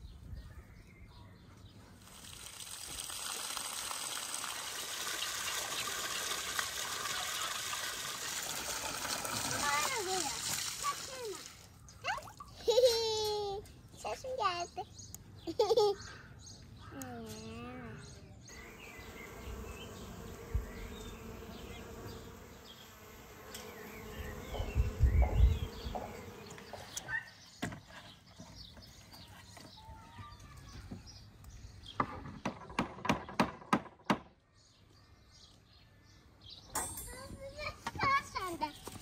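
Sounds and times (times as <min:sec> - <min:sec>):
birds chirping: 0:00.0 - 0:02.5, 0:04.2 - 0:13.0, 0:13.6 - 0:39.0
bee buzzing: 0:18.5 - 0:27.1.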